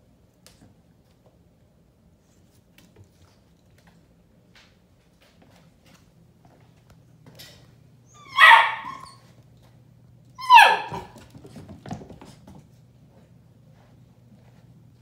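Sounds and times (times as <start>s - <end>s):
puppy barking: 8.2s - 9.2s, 10.4s - 11.2s.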